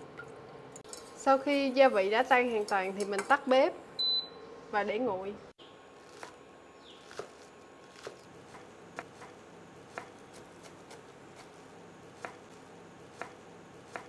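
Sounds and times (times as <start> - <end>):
knife chopping on wooden board: 13.2 - 14.0.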